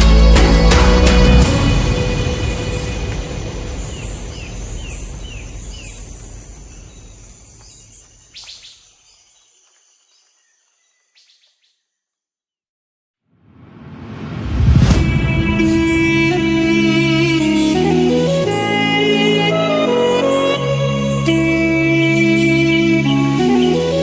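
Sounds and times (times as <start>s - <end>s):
background music: 0.0s - 4.6s, 14.6s - 24.0s.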